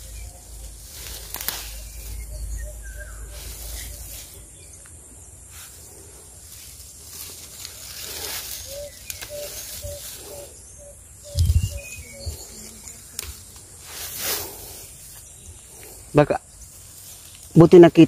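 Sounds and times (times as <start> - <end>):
leaves and stems rustling: 0.0 - 18.0
bird repeating low note: 8.6 - 13.2.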